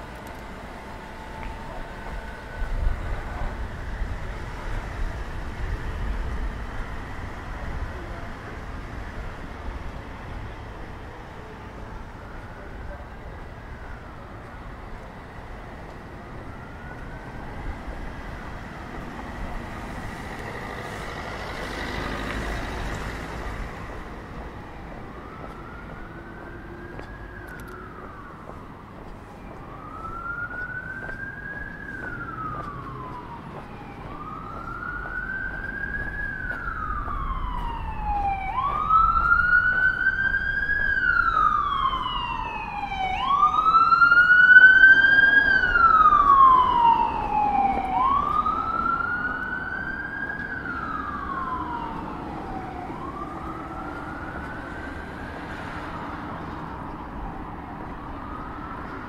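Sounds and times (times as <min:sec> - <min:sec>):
emergency siren wailing: 0:00.0 - 0:59.0
street traffic noise: 0:00.0 - 0:59.0
vehicle passing: 0:15.3 - 0:59.0.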